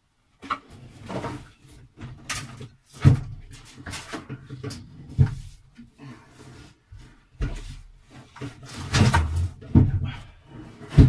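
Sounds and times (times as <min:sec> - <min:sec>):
wooden cupboard knocking and scraping: 0:07.0 - 0:10.2.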